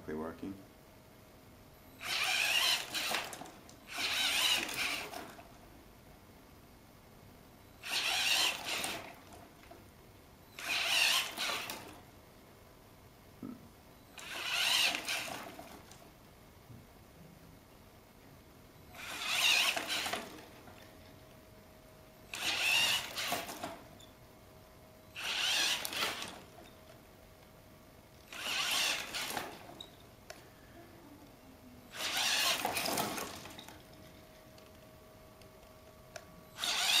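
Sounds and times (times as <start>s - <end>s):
faint steady hum: 0.0s - 37.0s
electric drive whirring: 1.9s - 5.5s, 7.8s - 9.7s, 10.5s - 12.1s, 14.0s - 16.0s, 18.8s - 20.9s, 22.2s - 24.2s, 25.1s - 27.0s, 28.1s - 30.4s, 31.9s - 33.9s, 36.1s - 37.0s.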